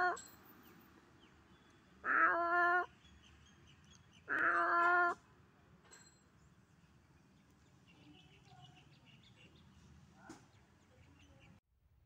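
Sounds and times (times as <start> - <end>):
drawn-out animal cries: 4.3 - 5.2.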